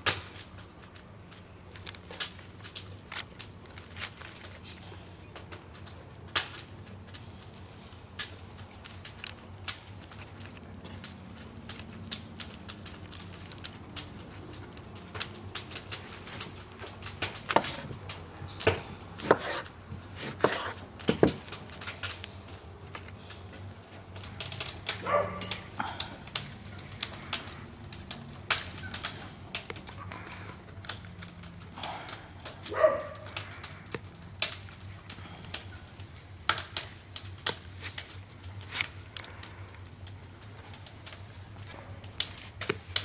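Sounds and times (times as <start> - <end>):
clicks taps and rustles: 0.0 - 43.0
knife cutting on wooden board: 19.2 - 20.8.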